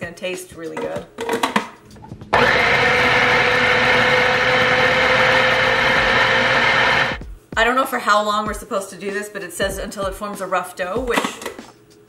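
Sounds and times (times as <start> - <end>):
food processor motor whining: 2.3 - 7.2.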